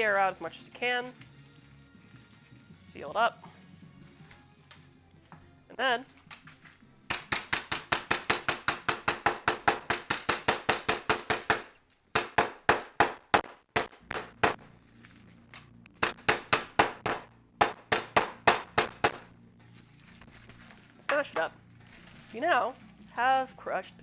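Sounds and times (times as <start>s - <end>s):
mallet pounding nuts in plastic bag: 7.1s - 14.7s, 16.0s - 19.3s.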